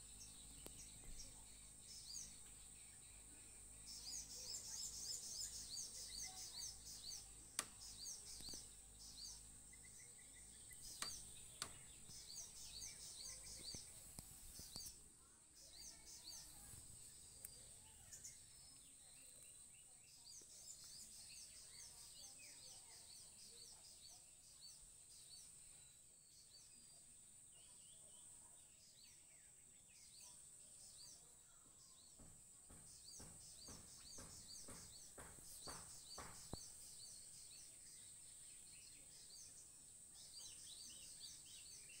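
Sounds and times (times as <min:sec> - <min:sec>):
steady high hiss: 0:00.0 - 0:19.0
birds chirping: 0:00.0 - 0:42.0
dull knocks: 0:32.2 - 0:36.7.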